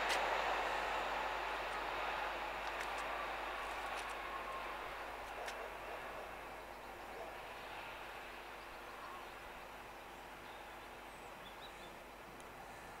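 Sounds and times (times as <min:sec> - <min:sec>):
faint bird chirps: 0:08.4 - 0:12.0.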